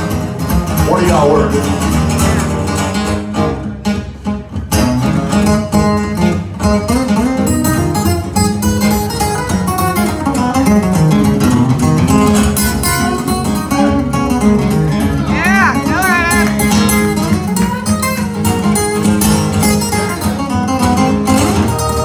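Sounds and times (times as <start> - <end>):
acoustic guitars strumming: 0.0 - 22.0
picked guitar lead line: 0.0 - 22.0.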